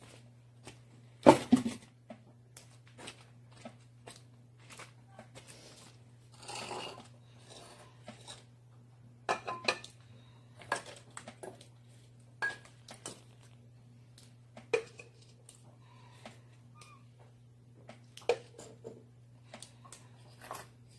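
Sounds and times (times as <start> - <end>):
ceramic pots clinking: 9.3 - 10.0, 14.7 - 15.3.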